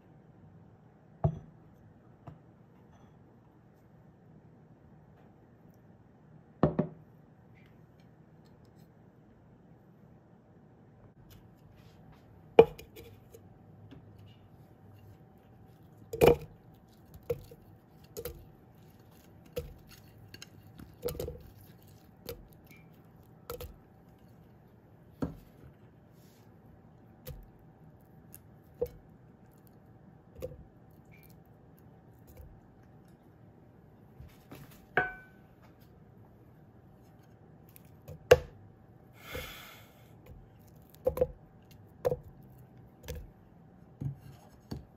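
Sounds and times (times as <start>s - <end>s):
faint steady hum: 0.0s - 44.9s
knocks and taps in plastic cup: 6.6s - 7.0s, 41.0s - 41.4s.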